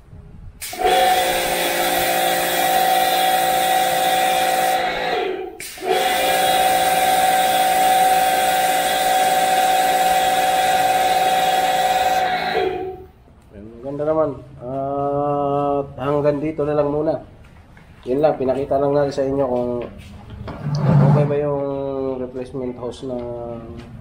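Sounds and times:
water spray hissing: 0.6 - 13.0
pressure washer motor whine: 0.6 - 13.1.

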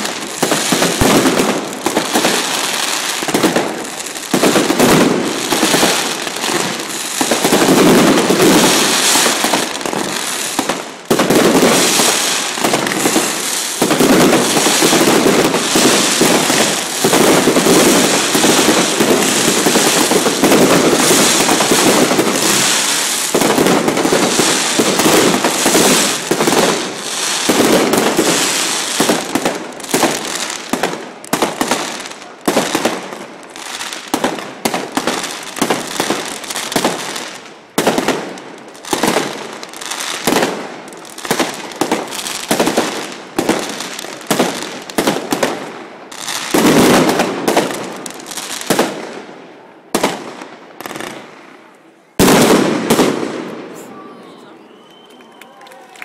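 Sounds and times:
fireworks crackling and banging: 0.0 - 56.0.

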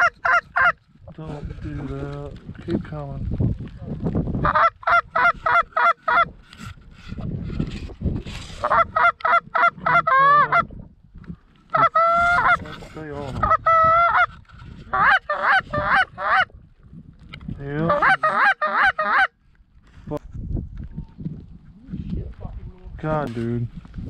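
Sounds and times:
goose honking: 17.9 - 19.3.

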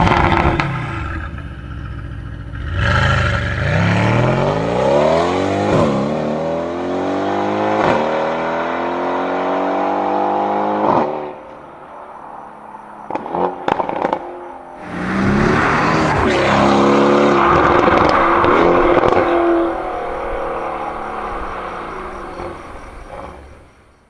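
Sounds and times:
car engine revving hard: 2.6 - 11.4, 13.1 - 22.6.

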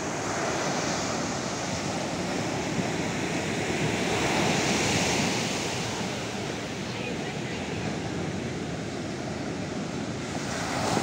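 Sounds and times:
small waves breaking on sand: 0.0 - 11.0.

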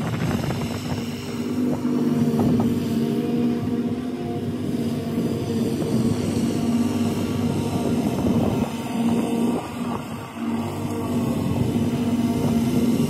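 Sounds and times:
riding lawn mower engine running: 0.0 - 13.0.

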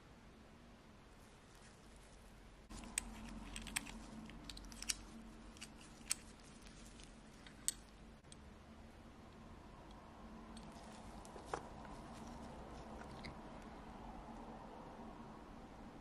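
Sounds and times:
glove rustling on metal: 1.2 - 7.7.

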